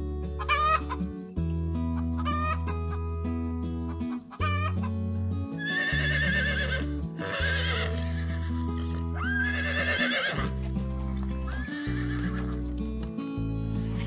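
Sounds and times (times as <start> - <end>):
background music with bass notes: 0.0 - 14.0
horse whinnying: 5.6 - 8.6, 9.2 - 10.6, 11.5 - 12.6.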